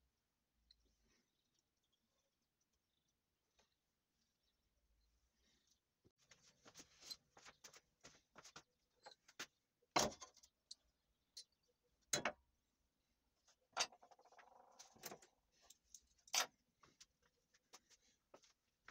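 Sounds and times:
metal tools set on wooden planks: 0:09.0 - 0:12.4, 0:13.5 - 0:17.2.

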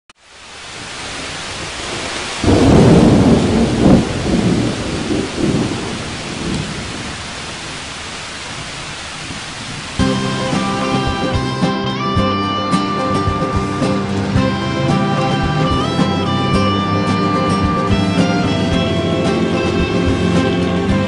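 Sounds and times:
heavy rain: 0:00.2 - 0:21.0
rumbling thunderclap: 0:01.8 - 0:07.8
music: 0:10.0 - 0:21.0.

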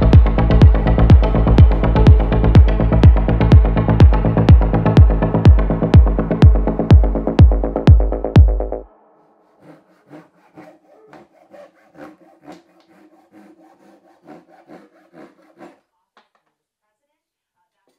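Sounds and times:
hand saw cutting wooden board: 0:09.5 - 0:15.8.

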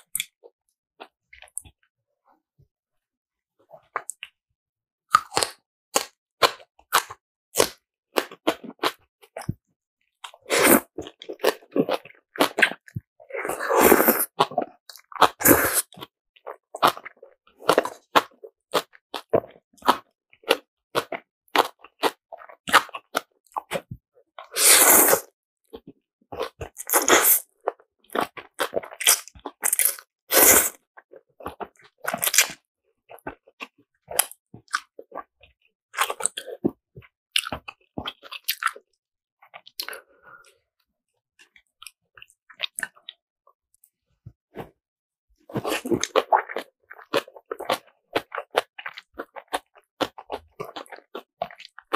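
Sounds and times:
chewing and crunching: 0:05.1 - 0:09.6, 0:10.2 - 0:24.6, 0:25.7 - 0:30.1, 0:31.0 - 0:40.6, 0:41.4 - 0:43.2, 0:45.5 - 0:51.9
slurping noodles: 0:10.4 - 0:16.0, 0:24.4 - 0:25.3, 0:26.6 - 0:27.6, 0:28.2 - 0:30.9.

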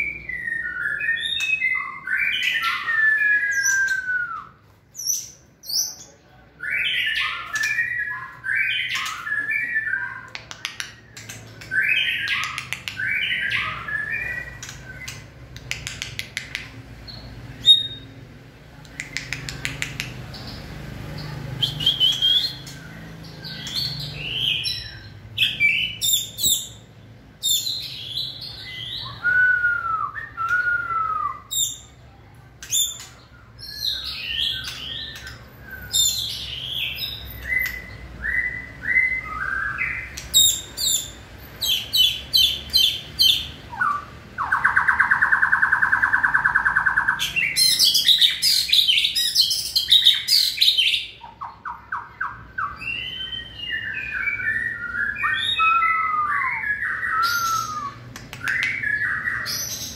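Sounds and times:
bird singing whistled phrases: 0:00.0 - 0:06.0, 0:21.6 - 0:26.8, 0:27.5 - 0:31.9, 0:32.8 - 0:59.9.

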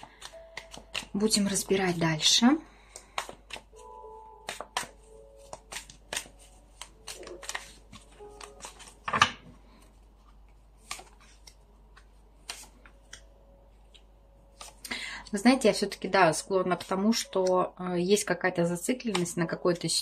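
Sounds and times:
cards being shuffled: 0:00.0 - 0:14.9.

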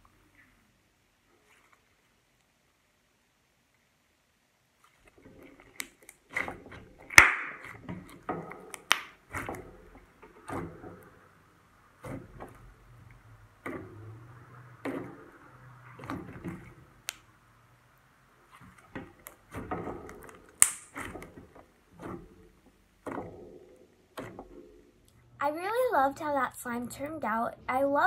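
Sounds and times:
slime squishing by hand: 0:04.7 - 0:25.3.

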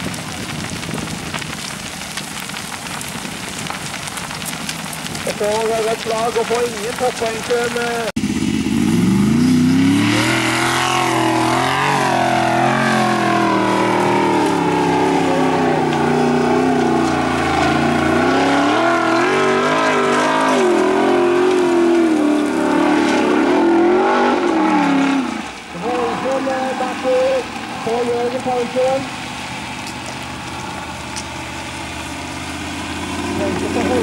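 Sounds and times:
buggy engine revving: 0:05.0 - 0:34.0.

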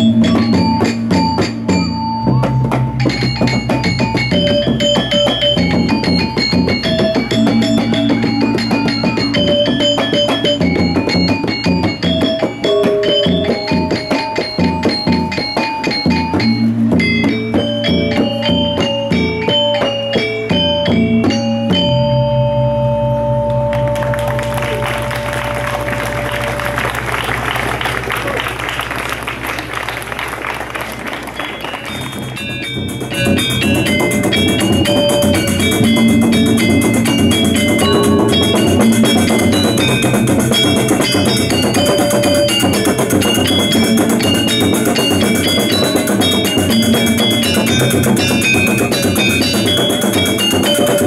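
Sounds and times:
drums: 0:00.0 - 0:51.0
metallophones ringing melody: 0:00.0 - 0:51.0
large gong stroke: 0:33.2 - 0:44.5.

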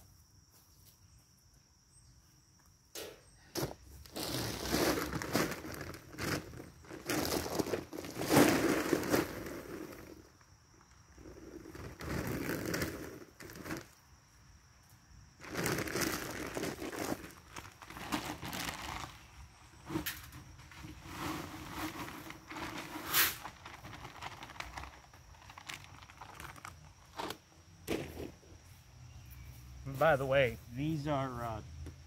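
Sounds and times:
plastic bags crinkling and tearing: 0:04.0 - 0:10.2, 0:11.6 - 0:13.9, 0:15.4 - 0:19.3, 0:21.1 - 0:27.4.

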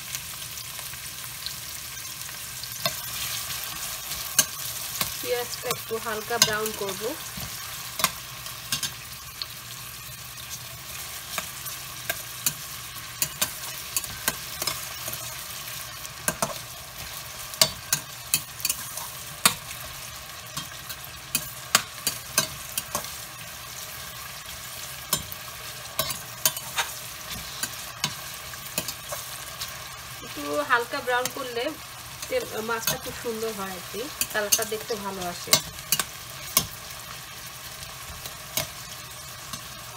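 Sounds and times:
onions sizzling in oil: 0:00.0 - 0:39.9
metal spoon scraping a pot: 0:26.0 - 0:28.2.

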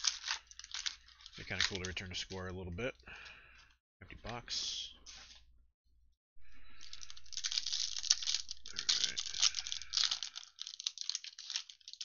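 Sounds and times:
foil wrapper crinkling and tearing: 0:00.0 - 0:02.4, 0:06.8 - 0:12.0.

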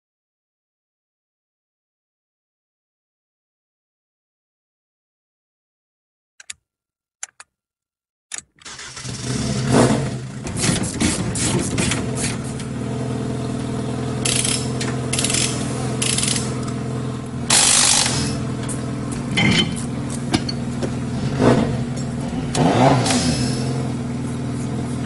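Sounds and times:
switch panel clicks: 0:06.4 - 0:06.6, 0:07.2 - 0:07.5, 0:08.3 - 0:08.6
short noisy engine bursts: 0:08.6 - 0:12.6, 0:14.2 - 0:16.6, 0:17.4 - 0:18.7, 0:21.2 - 0:24.1
rally car engine idling roughly: 0:08.7 - 0:25.0.

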